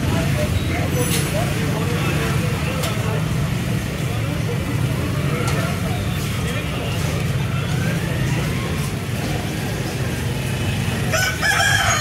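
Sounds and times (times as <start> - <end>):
road traffic rumble: 0.0 - 12.0
rooster crowing: 11.1 - 12.0.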